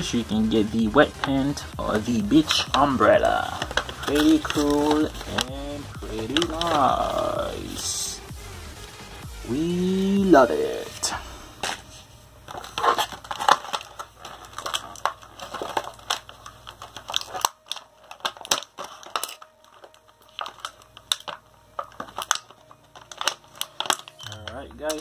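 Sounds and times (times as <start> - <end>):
plastic packaging crinkling: 0.0 - 8.2, 9.7 - 25.0
sharp snaps and clicks: 2.4 - 8.0, 12.7 - 25.0.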